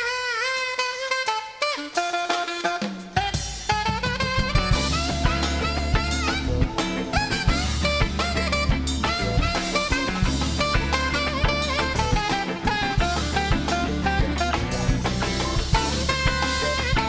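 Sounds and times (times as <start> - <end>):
drum kit beat: 0.0 - 17.0
horn melody with bent notes: 0.0 - 17.0
deep bass line: 4.4 - 17.0.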